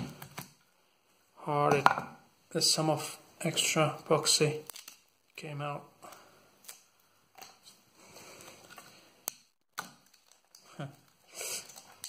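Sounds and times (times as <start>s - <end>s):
plastic wrap crinkling: 3.5s - 5.5s.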